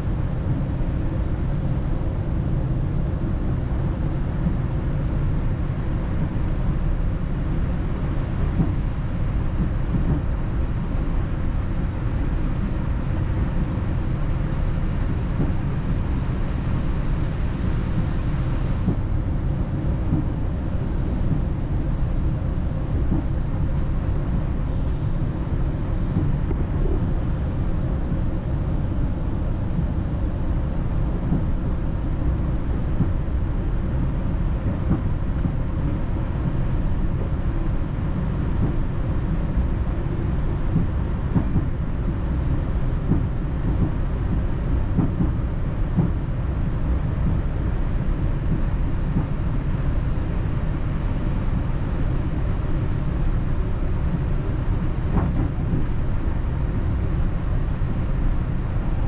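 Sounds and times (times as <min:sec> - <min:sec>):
train rumbling from inside coach: 0:00.0 - 0:59.0.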